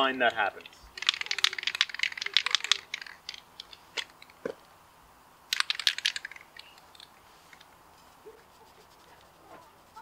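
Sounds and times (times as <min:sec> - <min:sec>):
spray can ball rattling: 0:01.0 - 0:04.5, 0:05.5 - 0:07.7.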